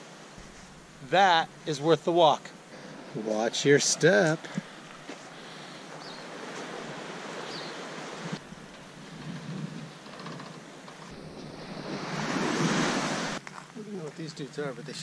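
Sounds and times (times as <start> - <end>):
small waves washing onto sand: 0.0 - 9.2, 11.1 - 13.4
wind on microphone: 8.2 - 10.0.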